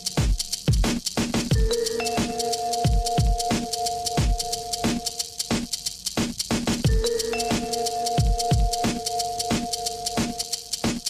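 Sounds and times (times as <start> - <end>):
hi-hat ticks: 0.0 - 11.0
kick drum: 0.2 - 1.7, 2.9 - 3.5, 4.2 - 4.4, 6.8 - 7.0, 8.2 - 8.8.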